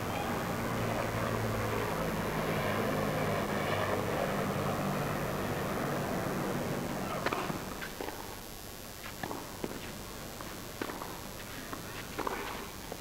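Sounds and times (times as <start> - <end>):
murmur of spectators: 0.0 - 2.2
low engine-like drone: 0.0 - 8.4.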